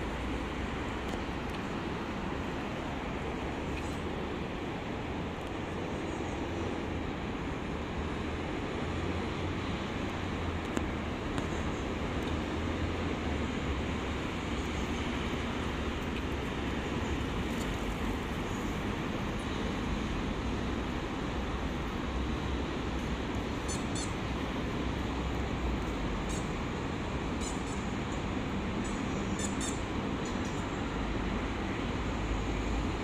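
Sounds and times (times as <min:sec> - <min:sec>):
road traffic passing cars: 0:00.0 - 0:33.0
short high squeaks: 0:23.7 - 0:24.2.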